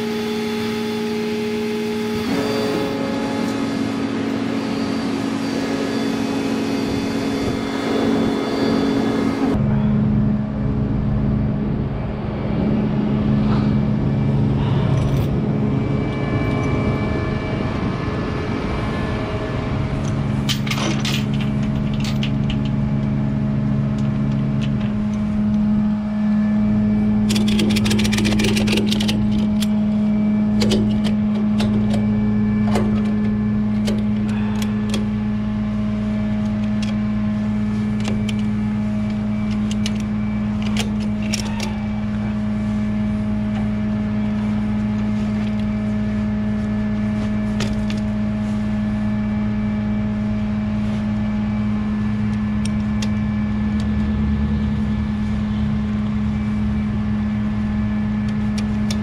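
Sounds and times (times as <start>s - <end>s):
tow truck engine running: 0.0s - 59.0s
ratchet strap clicking: 27.3s - 29.7s.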